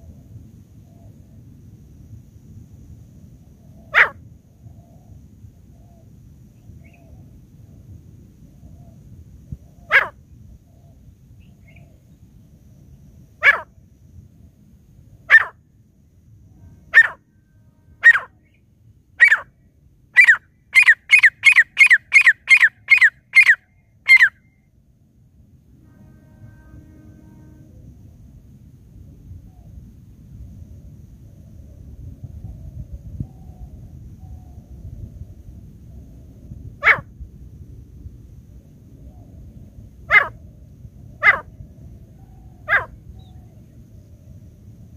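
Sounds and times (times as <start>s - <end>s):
francolin calling: 3.7s - 4.9s, 9.6s - 12.1s, 13.4s - 13.7s, 15.3s - 15.6s, 16.8s - 17.3s, 18.0s - 19.6s, 20.2s - 24.6s, 40.1s - 40.5s, 41.2s - 43.6s.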